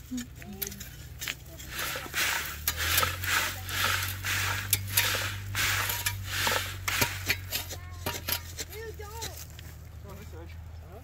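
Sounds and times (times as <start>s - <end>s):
gravel rattling on wire mesh sifter: 0.6s - 9.6s.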